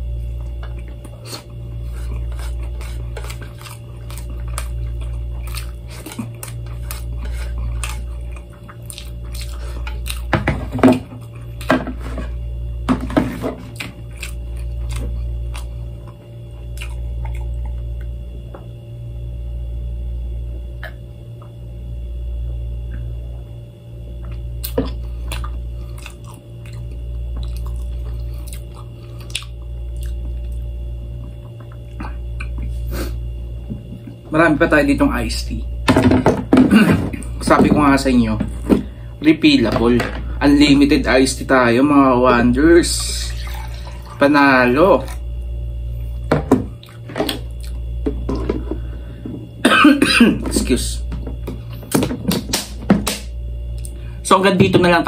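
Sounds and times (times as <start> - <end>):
low pulsing hum: 0.0 - 55.0
close-up chewing of food: 0.3 - 10.3, 13.6 - 18.1, 24.2 - 32.8.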